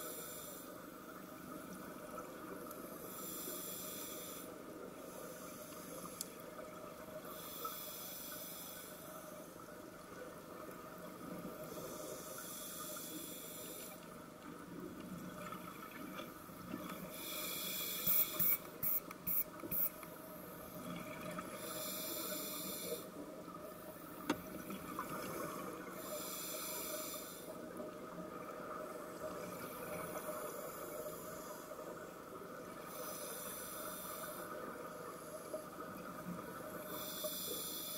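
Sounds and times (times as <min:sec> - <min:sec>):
underwater hum: 0:00.0 - 0:37.9
scuba regulator breathing: 0:03.0 - 0:06.4, 0:07.3 - 0:09.4, 0:17.1 - 0:19.9, 0:21.5 - 0:23.1, 0:26.0 - 0:27.5, 0:36.9 - 0:37.9.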